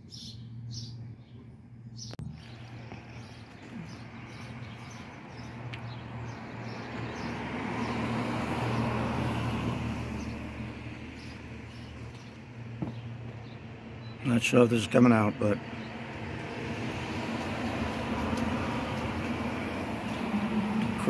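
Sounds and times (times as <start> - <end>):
road vehicle passing: 1.9 - 21.0.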